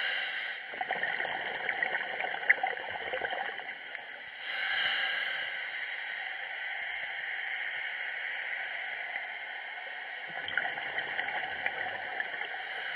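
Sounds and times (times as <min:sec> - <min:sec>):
underwater hiss: 0:00.0 - 0:01.4, 0:04.3 - 0:08.9, 0:10.4 - 0:12.9.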